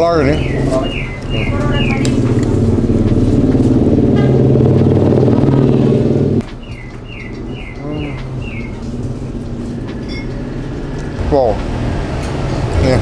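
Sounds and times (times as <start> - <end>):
bird chirping falling notes: 0.2 - 2.7, 6.4 - 9.1
motorcycle engine running: 0.4 - 6.4.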